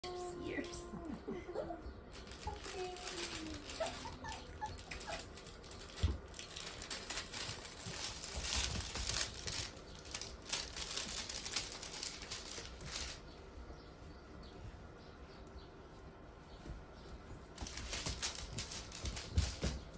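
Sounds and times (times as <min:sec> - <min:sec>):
puppies scuffling over toys: 0:02.1 - 0:13.4, 0:16.5 - 0:19.9.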